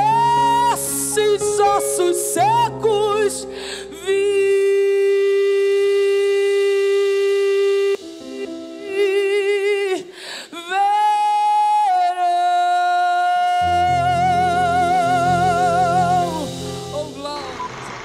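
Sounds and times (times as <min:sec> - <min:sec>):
woman singing with vibrato: 0:00.0 - 0:18.0.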